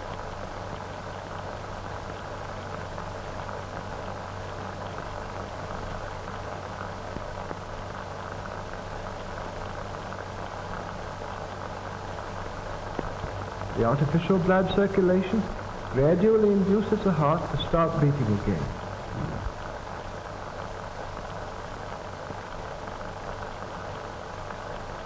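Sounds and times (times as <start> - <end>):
film soundtrack hiss and crackle: 0.0 - 25.0
low hum: 13.2 - 20.0.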